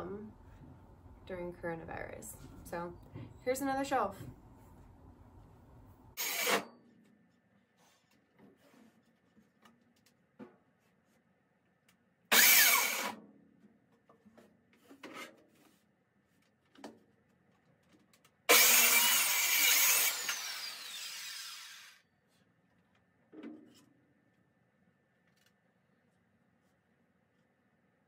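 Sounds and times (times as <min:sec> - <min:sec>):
circular saw cutting wood: 0:06.2 - 0:06.6, 0:12.3 - 0:13.2, 0:18.5 - 0:22.0
saw blade winding down: 0:06.2 - 0:06.6, 0:12.3 - 0:13.1, 0:18.5 - 0:22.0.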